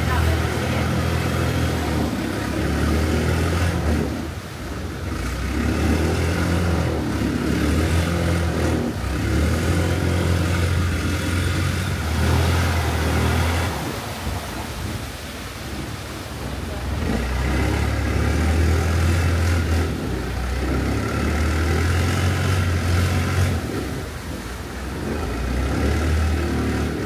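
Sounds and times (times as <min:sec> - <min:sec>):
boat engine running: 0:00.0 - 0:27.0.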